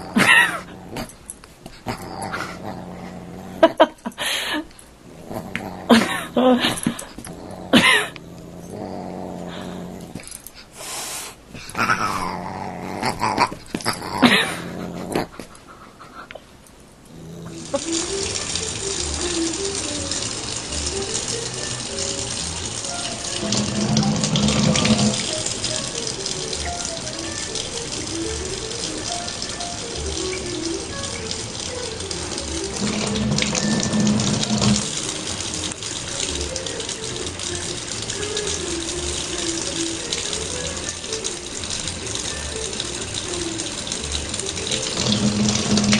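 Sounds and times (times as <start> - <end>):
dog growling: 0.0 - 4.0, 5.0 - 10.5, 11.6 - 15.9, 17.0 - 19.5, 22.4 - 26.9, 32.6 - 35.8
background music: 17.5 - 45.9
water running from tap: 17.5 - 45.9.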